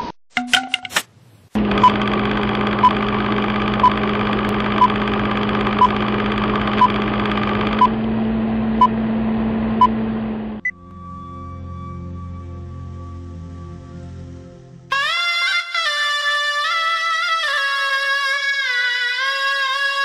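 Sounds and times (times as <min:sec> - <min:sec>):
film projector whirring: 0:01.6 - 0:10.6.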